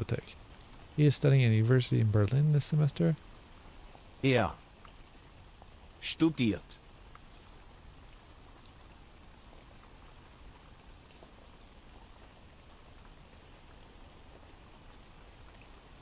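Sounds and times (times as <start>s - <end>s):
rain patter: 0.0s - 16.0s
single raindrops: 4.6s - 6.0s, 6.6s - 16.0s.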